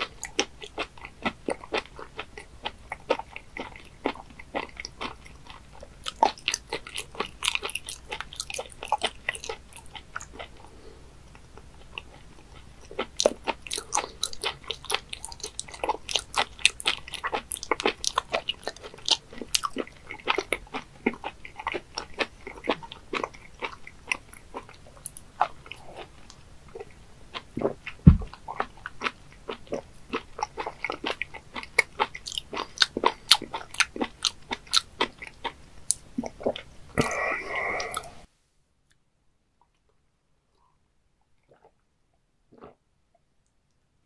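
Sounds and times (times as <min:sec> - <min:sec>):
wet chewing mouth clicks: 0:00.0 - 0:10.7, 0:11.4 - 0:38.2, 0:41.4 - 0:41.8
low thump: 0:28.0 - 0:28.3.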